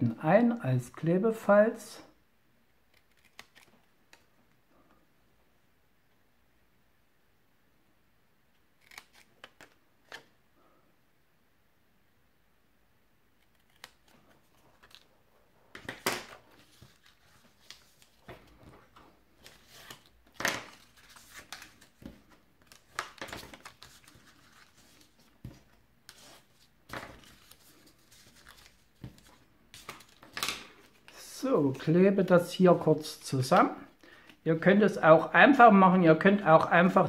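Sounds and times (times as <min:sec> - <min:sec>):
paper rustling: 0:13.4 - 0:31.9.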